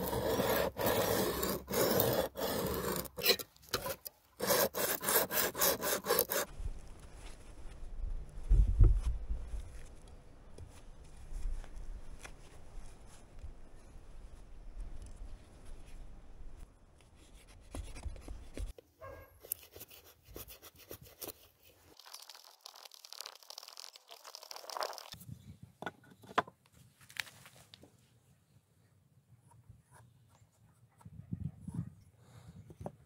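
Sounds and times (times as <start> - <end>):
blade shaving wood: 0.0 - 6.5
wind rumble on microphone: 7.7 - 9.8.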